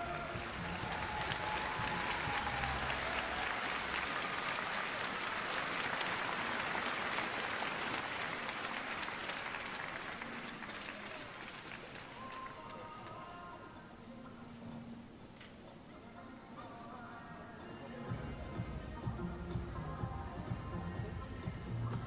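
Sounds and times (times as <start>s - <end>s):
audience applauding: 0.0s - 13.3s.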